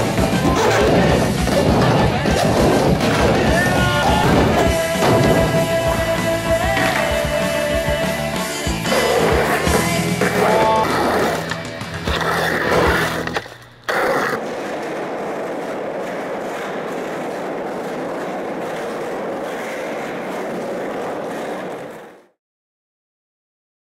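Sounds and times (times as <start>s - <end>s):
music: 0.0s - 13.4s
skateboard wheels rolling on concrete: 0.0s - 22.4s.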